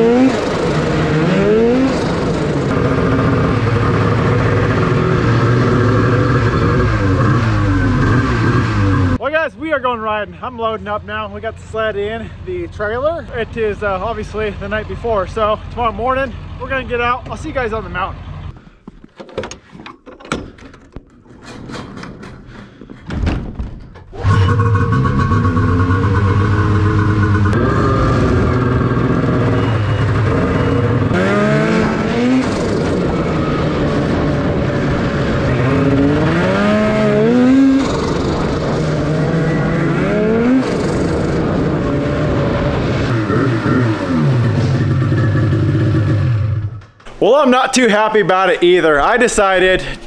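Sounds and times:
snowmobile engine revving: 0:00.0 - 0:09.2, 0:24.2 - 0:46.8
trailer door clicks and clunks: 0:19.1 - 0:24.3.

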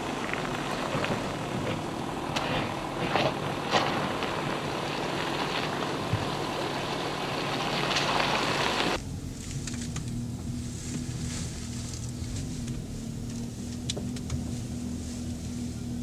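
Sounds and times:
tyres crunching on gravel: 0:00.0 - 0:15.5
in-cabin engine drone: 0:00.0 - 0:16.0
low engine note: 0:00.0 - 0:16.0.

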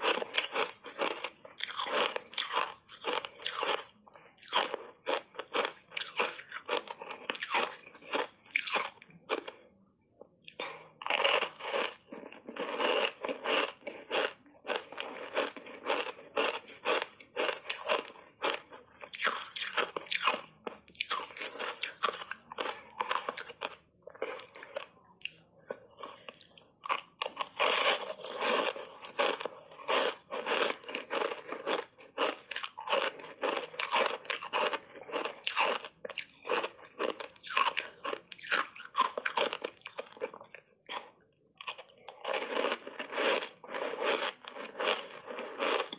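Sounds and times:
ice crunching while chewed: 0:00.0 - 0:45.9.

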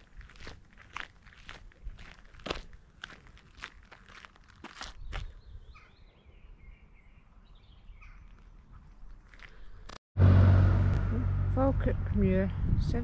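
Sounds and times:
footsteps on dirt path: 0:00.0 - 0:05.7, 0:08.0 - 0:10.0
faint bird calls: 0:05.4 - 0:09.0
loud low rumble: 0:10.2 - 0:13.0.

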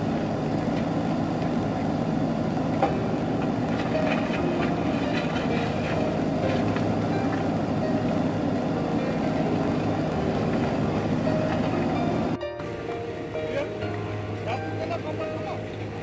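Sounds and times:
diesel engine running under load: 0:00.0 - 0:16.0
bucket and stones clanking: 0:03.7 - 0:07.0.

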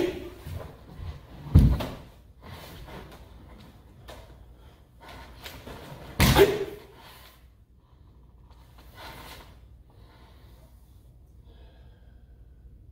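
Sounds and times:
person shouting: 0:06.2 - 0:06.8.

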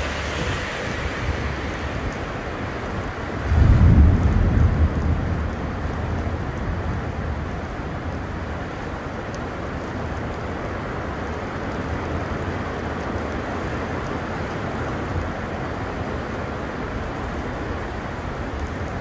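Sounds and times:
deep low thunder rumble: 0:00.0 - 0:08.0
heavy rain pouring: 0:00.0 - 0:19.0.

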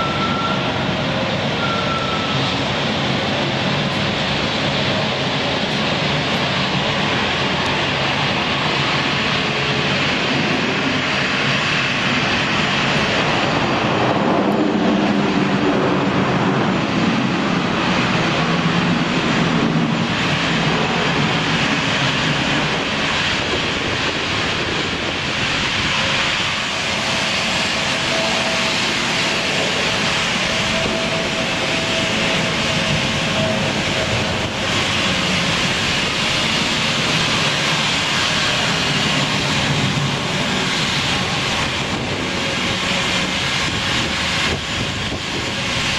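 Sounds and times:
jet engines: 0:00.0 - 0:45.9.

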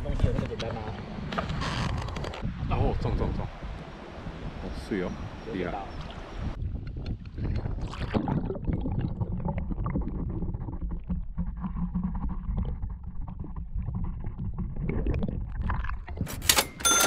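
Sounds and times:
muffled underwater river current: 0:05.4 - 0:06.6.

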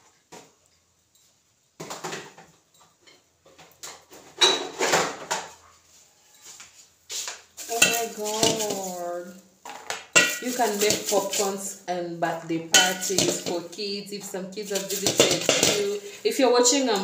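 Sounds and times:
kitchenware clattering: 0:01.8 - 0:05.6, 0:07.6 - 0:11.8, 0:12.5 - 0:17.0.

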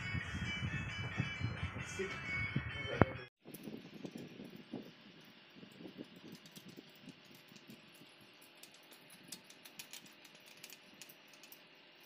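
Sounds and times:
small metal parts clicking: 0:05.2 - 0:12.0.

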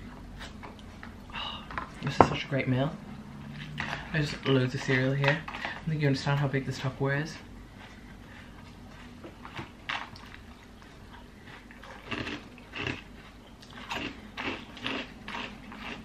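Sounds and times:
person chewing crunchy cereal: 0:03.4 - 0:06.0, 0:06.8 - 0:16.0.

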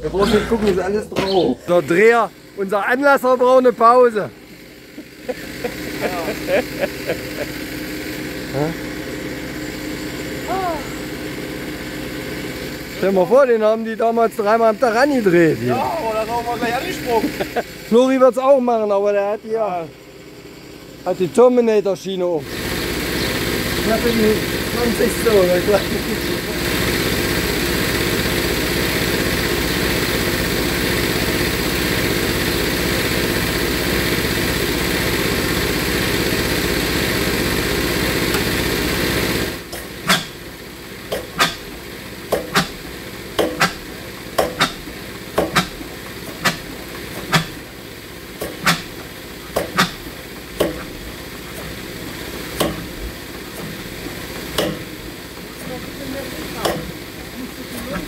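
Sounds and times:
stationary engine droning: 0:00.0 - 0:58.0
sharp irregular knocks: 0:43.4 - 0:43.8, 0:44.4 - 0:45.8, 0:46.4 - 0:47.6.

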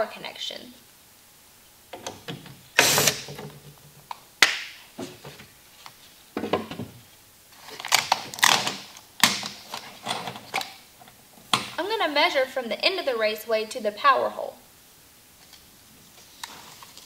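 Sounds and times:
scrapes and rustles: 0:16.0 - 0:17.0.

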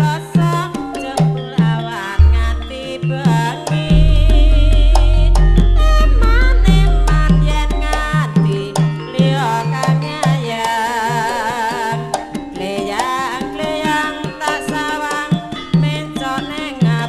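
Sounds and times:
woman singing: 0:00.0 - 0:17.0
sustained metallophone tones: 0:02.0 - 0:10.8
hand drums beating: 0:02.2 - 0:10.3.

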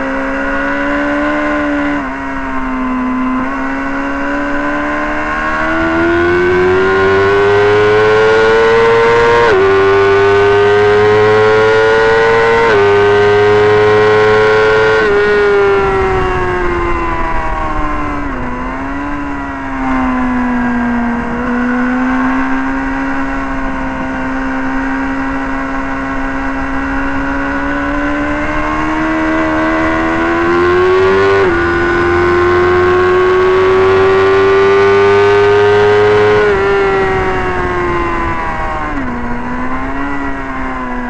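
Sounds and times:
motorcycle engine racing: 0:00.0 - 0:41.0
wind rush on microphone: 0:15.0 - 0:41.0.

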